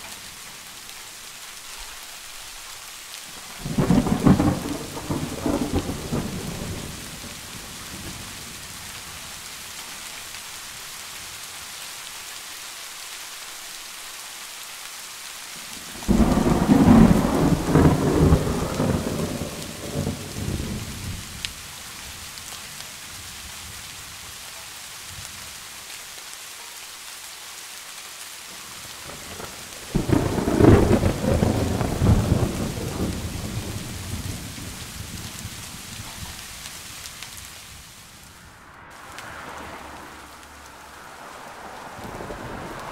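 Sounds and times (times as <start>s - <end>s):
steady rain: 0.0s - 42.9s
thunder rumbling: 3.5s - 8.8s, 15.9s - 21.3s, 29.0s - 42.9s.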